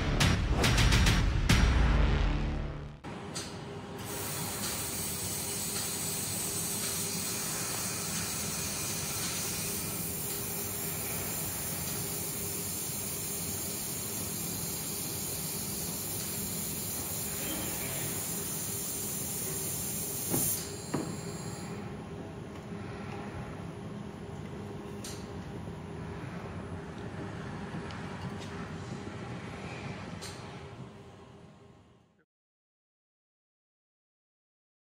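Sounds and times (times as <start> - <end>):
laser welder hissing: 4.0 - 21.6.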